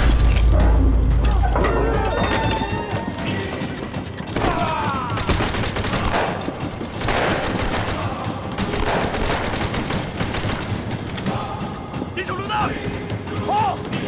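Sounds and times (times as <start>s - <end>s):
barrage of gunfire: 4.4s - 11.0s.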